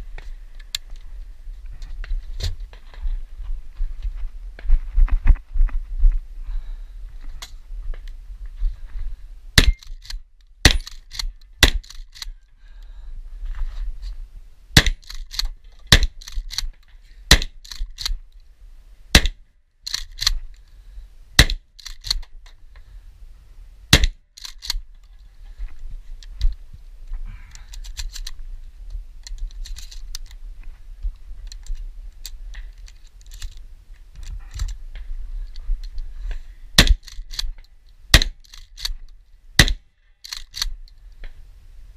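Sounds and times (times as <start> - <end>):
shotgun shots: 14.8 - 15.1, 15.9 - 16.2, 36.8 - 37.1, 39.6 - 39.8
light clicks and rattles: 24.4 - 30.4, 31.0 - 36.4.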